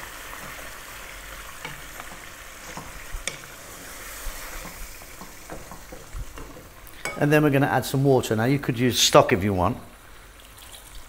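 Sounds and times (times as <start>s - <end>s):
wooden spoon stirring tomatoes: 0.0s - 7.6s
pan sizzling: 0.0s - 8.4s
spoon knocking against pot: 4.6s - 7.2s.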